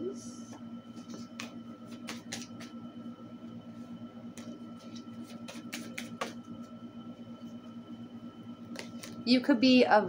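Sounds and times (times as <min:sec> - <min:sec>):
steady background hum: 0:00.0 - 0:10.0
cards being shuffled: 0:01.0 - 0:02.8, 0:04.3 - 0:06.4.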